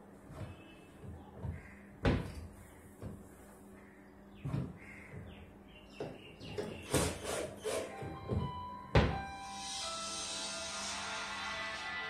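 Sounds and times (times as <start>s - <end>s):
wooden panel knocking and thumping: 0.3s - 3.3s, 4.4s - 7.2s, 8.0s - 9.2s.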